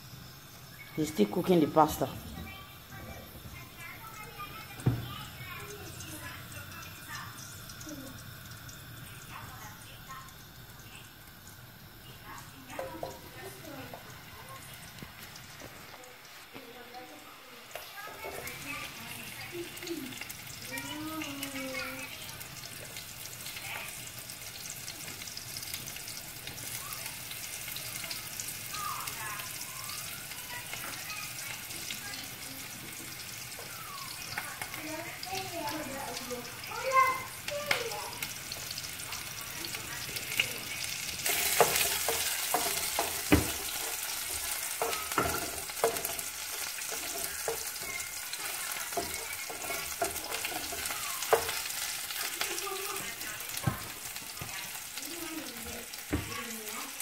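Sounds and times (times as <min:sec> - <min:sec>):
oil sizzling and crackling: 0:00.0 - 0:57.0
wooden spoon knocking on pan: 0:04.7 - 0:05.6, 0:12.7 - 0:14.1, 0:41.3 - 0:51.7, 0:53.0 - 0:54.6, 0:56.1 - 0:56.4.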